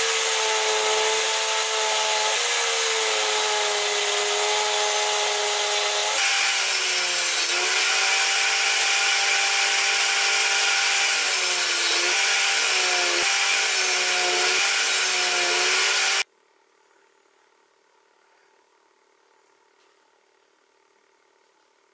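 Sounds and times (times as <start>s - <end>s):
table saw cutting wood: 0.0s - 16.2s.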